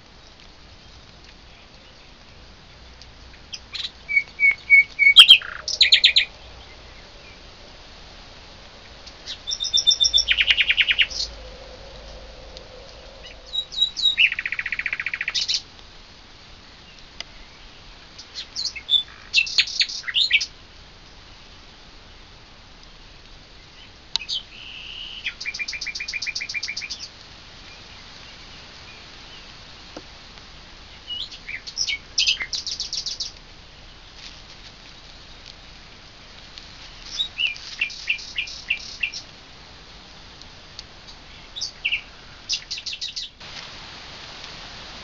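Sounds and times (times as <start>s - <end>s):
background hiss: 0.0s - 45.0s
songbird singing trills: 3.2s - 15.7s, 17.3s - 20.5s, 23.6s - 29.5s, 30.9s - 34.1s, 37.0s - 39.3s, 41.0s - 43.4s.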